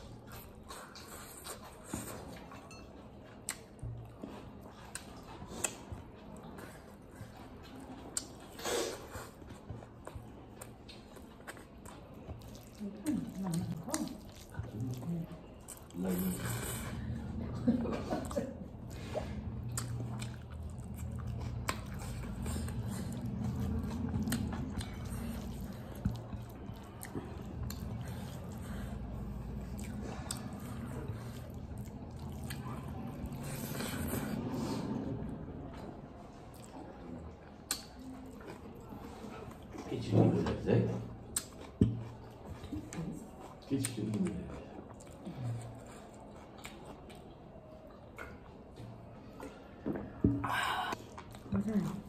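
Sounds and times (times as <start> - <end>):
chewing and mouth sounds: 0.0 - 52.0
wet mouth clicks: 37.6 - 38.1.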